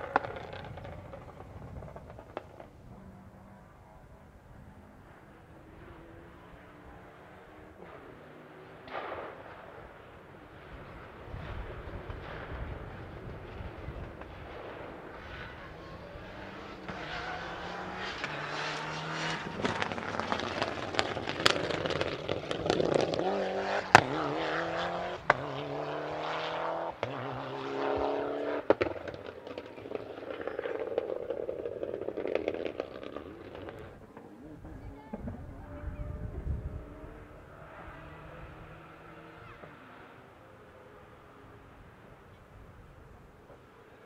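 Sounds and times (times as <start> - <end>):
rally car engine revving past: 0.0 - 44.0
sharp cracks: 8.8 - 10.0.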